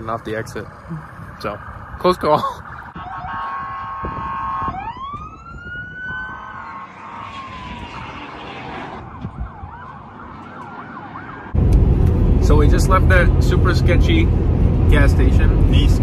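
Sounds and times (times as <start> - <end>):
police siren: 0.7 - 11.6.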